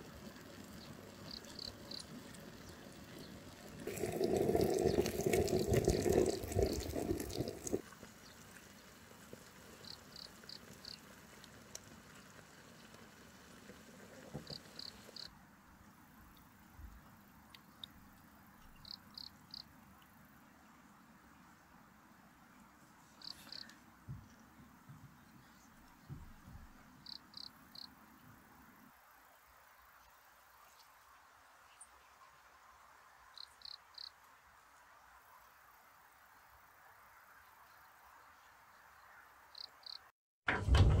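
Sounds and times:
broth bubbling in pot: 0.0 - 15.3
liquid trickling through strainer: 3.5 - 7.8.

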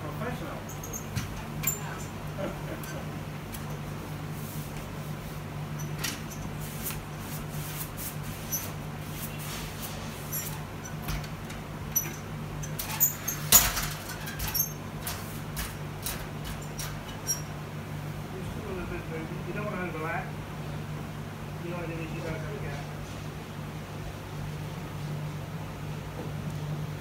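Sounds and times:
steady low hum: 0.0 - 27.0
wallpaper clicks and squeaks: 8.4 - 17.5.

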